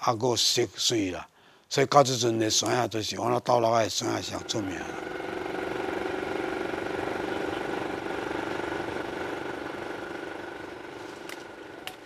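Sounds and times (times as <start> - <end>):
small vehicle engine running: 4.0 - 12.0.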